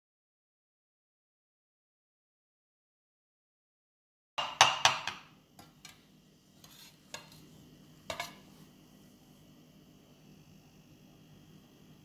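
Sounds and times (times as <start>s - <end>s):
metal cake server clinking on plate: 8.1s - 8.5s.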